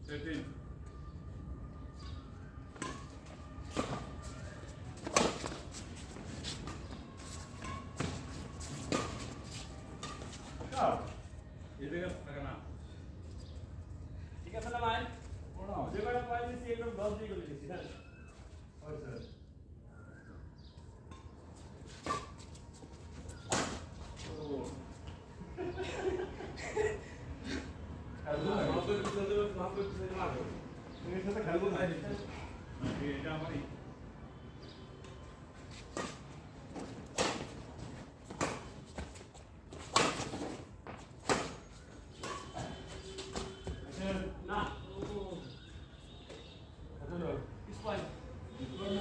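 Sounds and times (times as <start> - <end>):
racket hitting shuttlecock: 39.7 - 41.6, 42.2 - 43.5.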